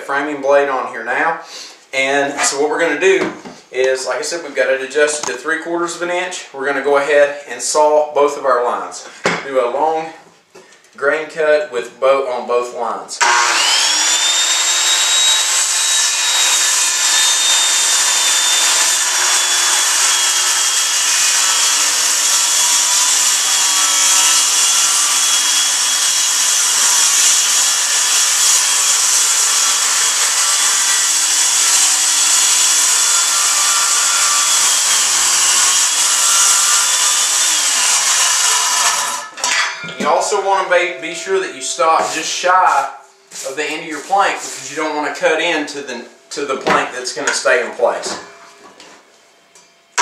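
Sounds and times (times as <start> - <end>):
circular saw cutting wood: 13.2 - 48.8.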